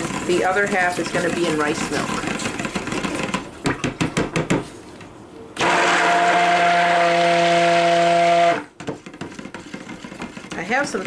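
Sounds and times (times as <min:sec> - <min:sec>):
stick blender motor hum: 0:00.0 - 0:03.5, 0:05.6 - 0:10.9.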